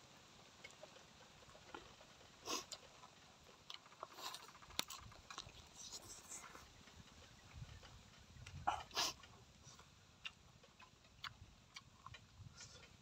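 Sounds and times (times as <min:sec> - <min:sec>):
person chewing: 0:02.5 - 0:06.7, 0:08.4 - 0:13.0.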